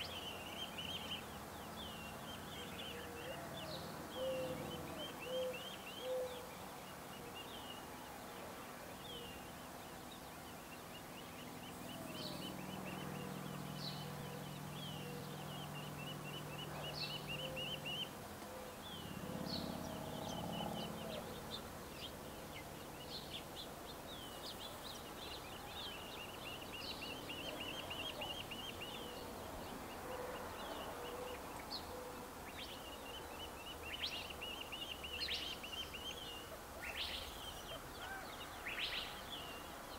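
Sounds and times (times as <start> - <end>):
faint low calls: 0.0 - 39.9.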